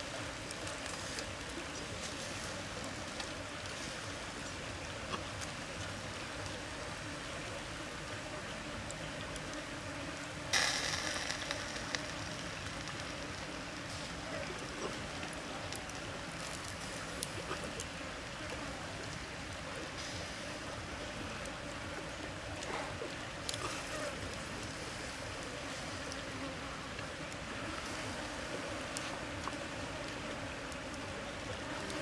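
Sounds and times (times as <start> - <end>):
burning sticks crackling: 0.0 - 32.0
food sizzling on a grill: 0.7 - 4.2, 10.4 - 17.8, 20.0 - 20.9, 22.7 - 26.3, 27.8 - 29.1.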